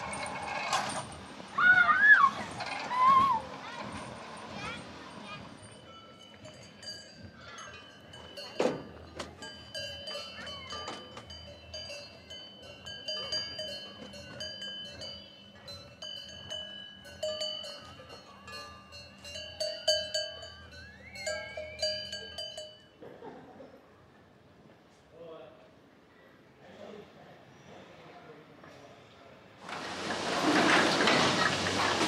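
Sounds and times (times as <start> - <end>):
cowbells clanking: 0.0 - 1.6, 2.3 - 23.2.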